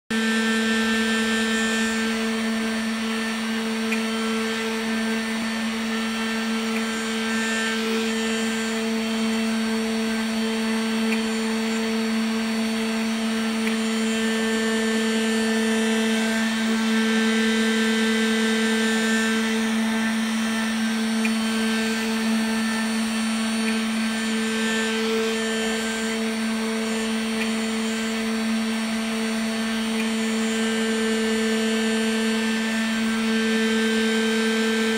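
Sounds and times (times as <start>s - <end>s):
engraver motor hum and whine: 0.1s - 34.9s.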